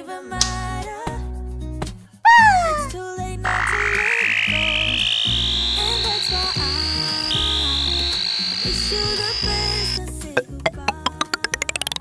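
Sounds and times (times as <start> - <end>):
high whistling gliding tone: 3.7 - 9.4
electronic music: 10.4 - 12.0.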